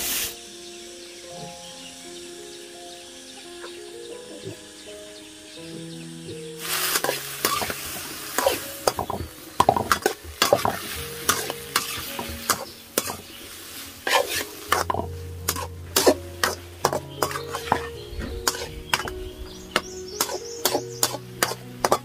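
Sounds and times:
food sizzling in wok: 0:00.0 - 0:00.8, 0:04.6 - 0:22.0
metal spatula clinking and scraping wok: 0:06.9 - 0:22.0.

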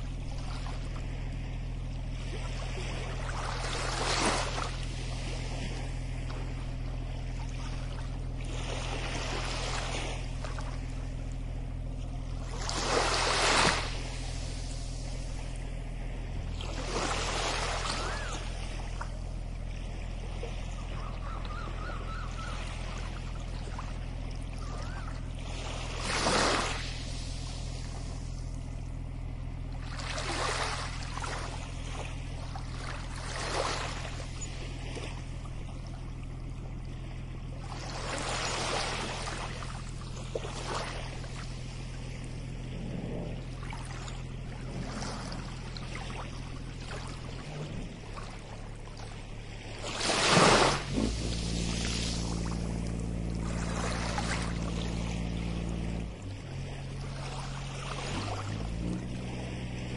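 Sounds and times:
low hum: 0:00.0 - 0:59.9
small waves washing onto shore: 0:00.0 - 0:59.9.

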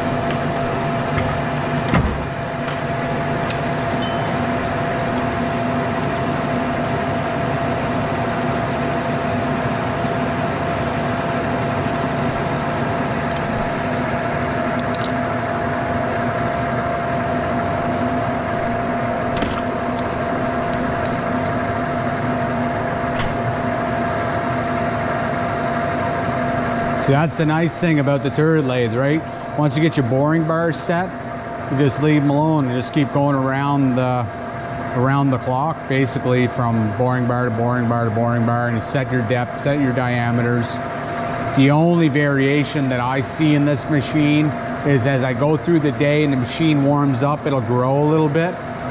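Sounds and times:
lathe machining hum: 0:00.0 - 0:48.9
steady high tone: 0:02.4 - 0:11.4.

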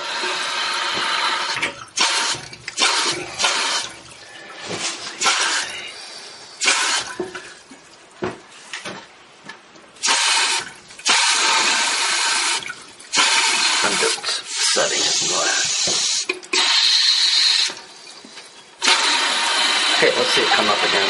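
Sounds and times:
water hissing into toilet tank: 0:00.0 - 0:07.8, 0:10.0 - 0:21.0.

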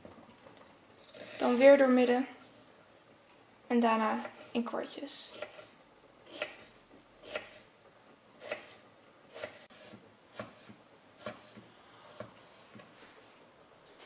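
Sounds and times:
knife slicing cucumber: 0:08.4 - 0:11.6.

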